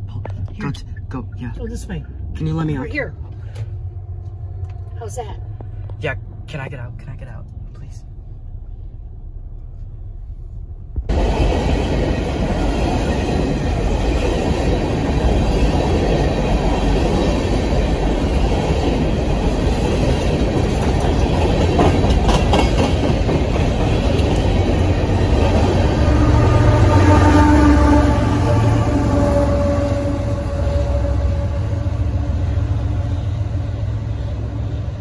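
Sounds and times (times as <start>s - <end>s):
train wheels rumbling and clacking: 10.6s - 35.0s.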